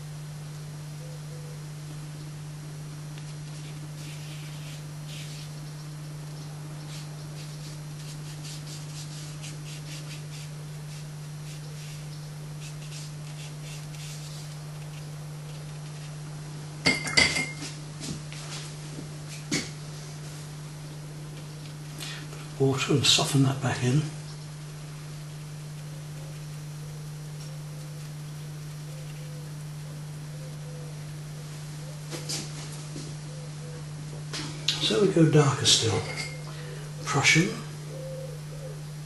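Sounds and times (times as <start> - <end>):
steady low hum: 0.0 - 39.0
brush strokes on paper: 3.3 - 5.6, 6.9 - 15.0
paintbrush clinking against jar: 16.9 - 17.7, 35.9 - 36.5.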